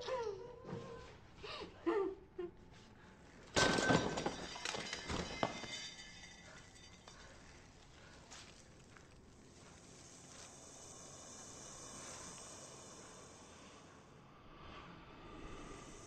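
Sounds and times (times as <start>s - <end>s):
woman whimpering: 0.0s - 2.6s.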